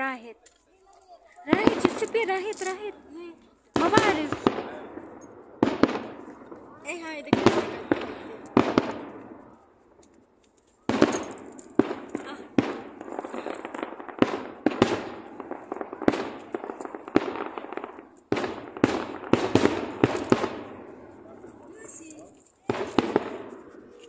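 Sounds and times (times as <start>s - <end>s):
firework shells bursting: 1.5s - 2.9s, 3.7s - 24.0s.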